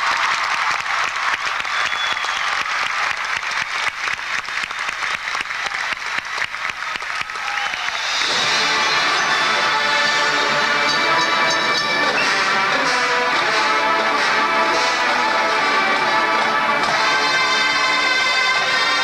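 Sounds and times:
crowd applauding: 0:00.0 - 0:19.0
marching band playing: 0:07.9 - 0:19.0.

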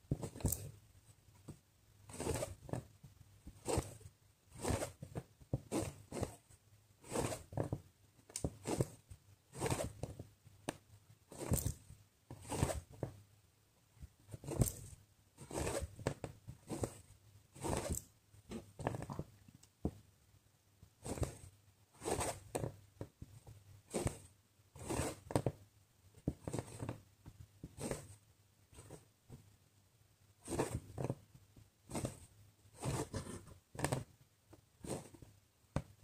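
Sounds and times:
thread pulled through fabric: 0:02.0 - 0:10.2, 0:11.3 - 0:13.1, 0:14.3 - 0:19.3, 0:21.0 - 0:22.8, 0:23.9 - 0:25.4, 0:27.6 - 0:29.1, 0:30.4 - 0:31.2, 0:31.9 - 0:34.1, 0:34.8 - 0:35.3.

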